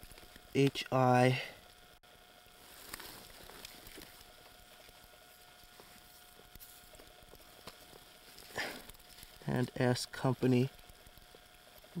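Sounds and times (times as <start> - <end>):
thin steady hum: 0.0 - 12.0
light ticks and rustles: 2.6 - 12.0.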